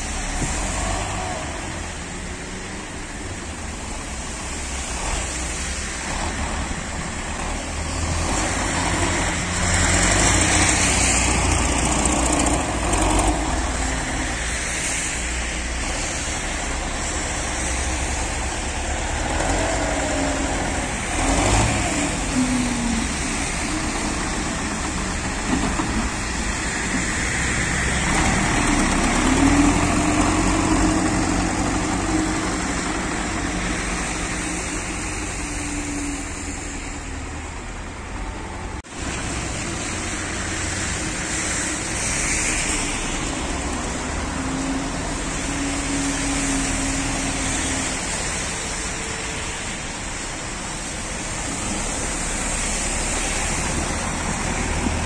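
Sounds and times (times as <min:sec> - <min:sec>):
tractor engine revving: 0:00.0 - 0:36.8.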